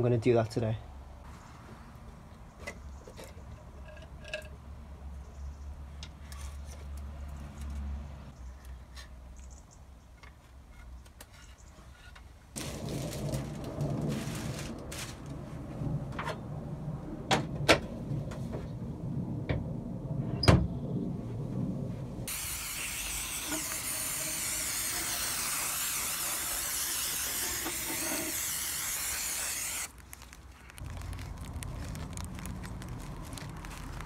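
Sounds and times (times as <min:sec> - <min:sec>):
aerosol spray can hissing: 0:22.3 - 0:29.9.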